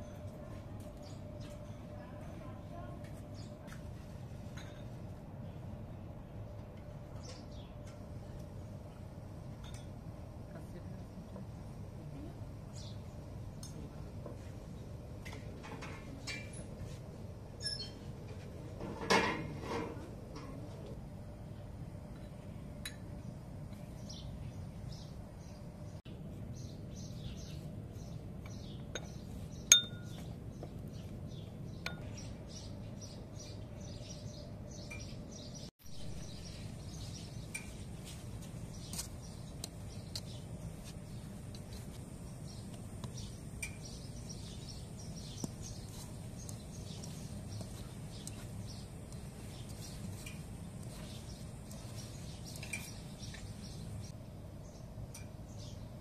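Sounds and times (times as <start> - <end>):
small birds chirping: 0.0 - 4.0, 7.1 - 8.5, 10.5 - 16.8, 22.9 - 56.0
dishes clinking: 4.5 - 5.0, 9.6 - 10.0, 18.8 - 20.5.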